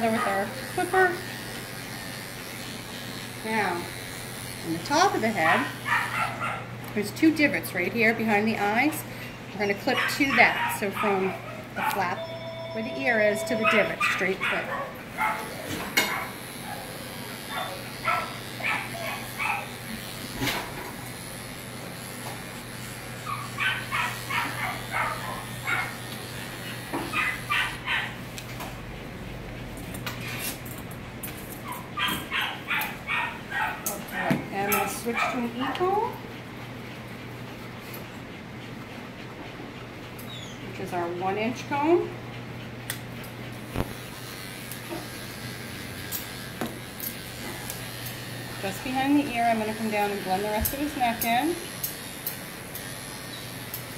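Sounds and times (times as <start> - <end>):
electric clippers humming: 0.0 - 36.2, 42.9 - 53.9
dog whining: 13.4 - 19.8, 23.2 - 26.0, 27.0 - 28.2, 31.6 - 35.4, 40.2 - 40.7.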